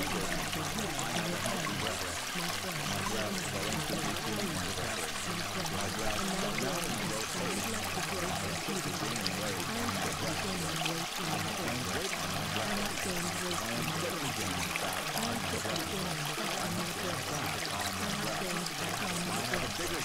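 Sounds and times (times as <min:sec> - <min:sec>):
low voice murmuring: 0:00.0 - 0:20.0
running water: 0:00.0 - 0:20.0.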